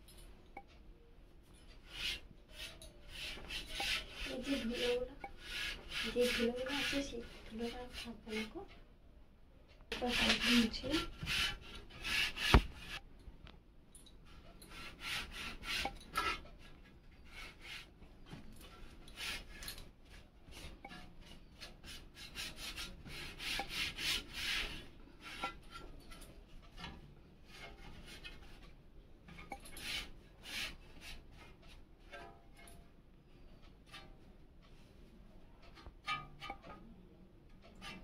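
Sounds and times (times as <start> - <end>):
cloth rubbing fan blades: 1.6 - 8.7, 9.9 - 13.0.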